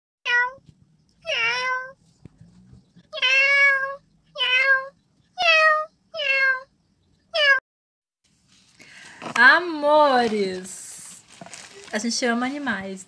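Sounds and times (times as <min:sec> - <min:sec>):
cat meowing: 0:00.2 - 0:00.6, 0:01.2 - 0:02.0, 0:03.1 - 0:06.7, 0:07.3 - 0:07.6.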